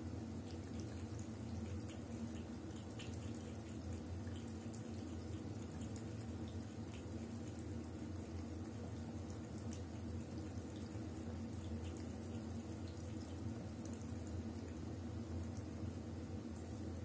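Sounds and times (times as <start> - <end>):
water drips: 0.4 - 17.0.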